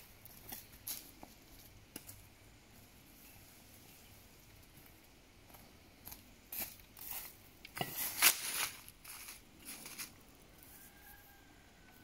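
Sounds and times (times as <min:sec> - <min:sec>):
footsteps crunching dry leaves: 0:06.5 - 0:10.2.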